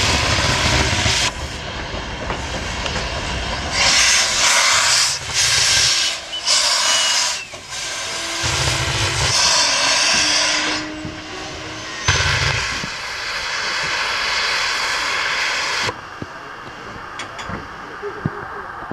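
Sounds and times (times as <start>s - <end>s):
steam locomotive hissing: 0.0s - 16.0s
low rumble: 7.6s - 14.2s.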